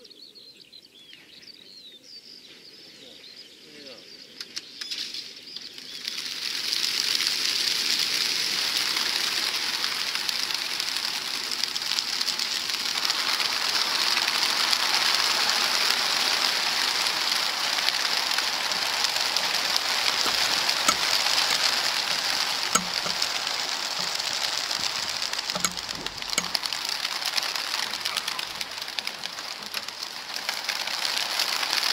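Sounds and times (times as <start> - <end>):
faint sharp clicks: 4.4 - 5.0, 17.8 - 30.9
pigeon wings flapping: 5.7 - 31.9.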